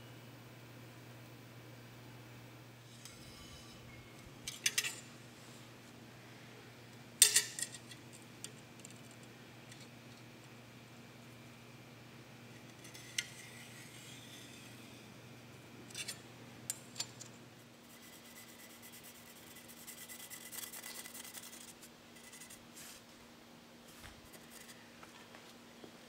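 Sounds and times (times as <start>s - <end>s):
marker scratching on metal: 17.8s - 22.6s, 24.3s - 24.8s.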